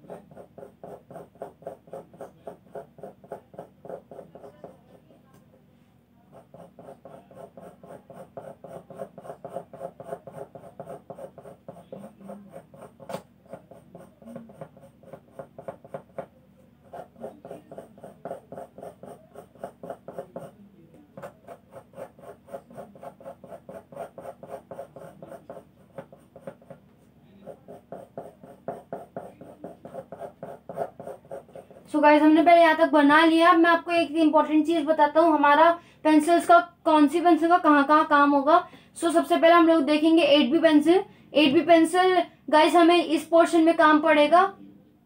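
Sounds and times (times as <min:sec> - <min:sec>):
pencil scratching on paper: 0:00.0 - 0:05.2, 0:06.3 - 0:20.6, 0:21.2 - 0:32.6.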